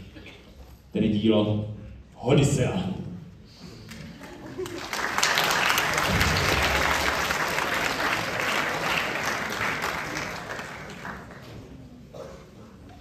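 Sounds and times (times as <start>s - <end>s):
audience applauding: 4.1s - 11.8s.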